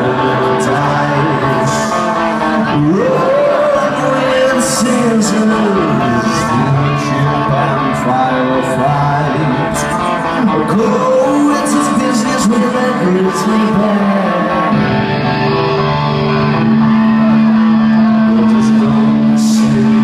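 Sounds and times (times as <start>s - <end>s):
electric guitars: 0.0s - 20.0s
singer holding a long note: 0.0s - 20.0s.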